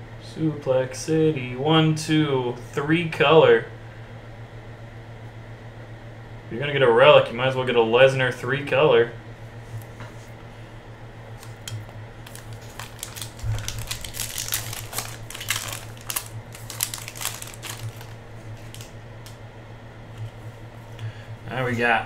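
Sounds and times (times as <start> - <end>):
foil wrapper crackling: 11.4 - 19.4.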